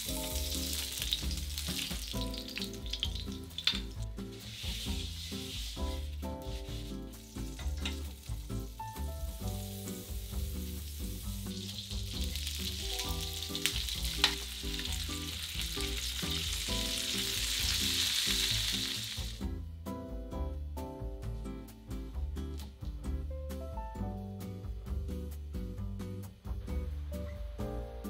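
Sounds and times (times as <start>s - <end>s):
fish sizzling in a frying pan: 0.0s - 19.5s.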